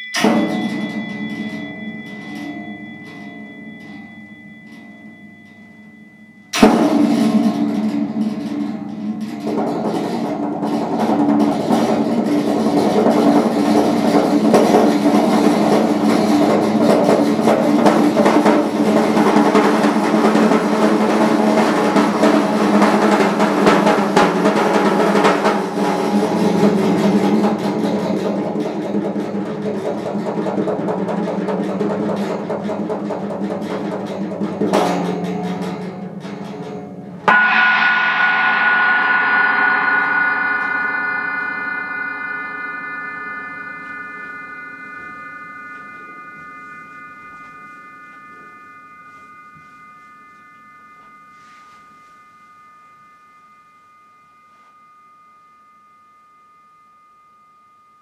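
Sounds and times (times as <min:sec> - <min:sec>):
struck metal instrument ringing: 0:00.0 - 0:30.1, 0:34.9 - 0:57.7
mallet roll on snare drum: 0:06.6 - 0:48.3.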